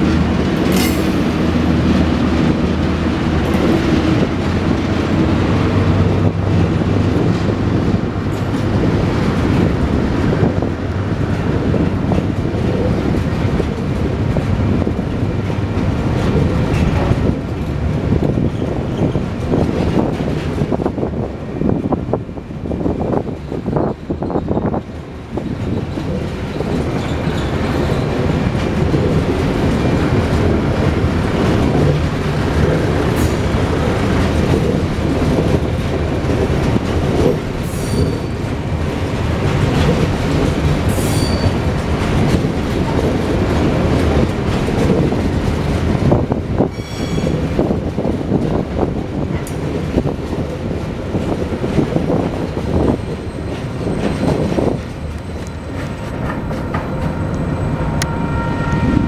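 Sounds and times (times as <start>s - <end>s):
train wheels rumbling on rails: 0.0s - 59.0s
high-pitched wheel squeals: 37.7s - 38.4s, 40.9s - 41.6s, 46.7s - 47.4s, 57.1s - 59.0s.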